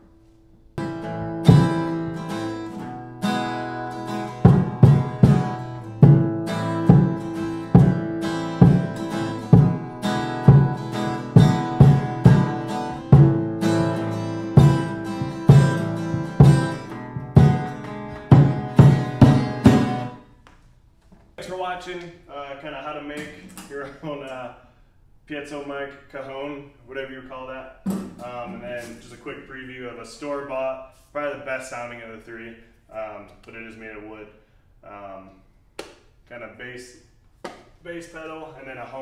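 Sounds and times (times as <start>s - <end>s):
acoustic guitar strumming: 0.8s - 20.3s
stomp box thumps: 4.4s - 9.9s, 10.5s - 20.1s.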